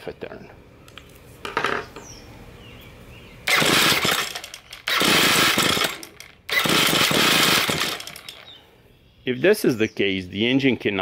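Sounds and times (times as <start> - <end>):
trimmer engine electric starter cranking: 3.4 - 8.6.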